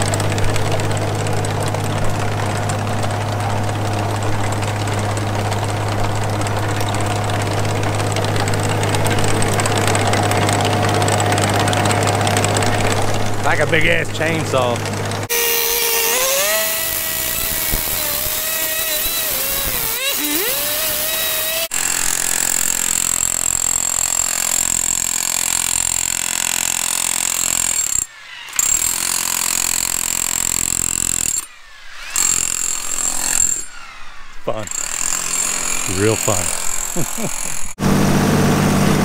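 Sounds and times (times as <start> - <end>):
cut-off saw cutting concrete: 0.0 - 39.0
demolition hammer breaking concrete: 16.1 - 28.0.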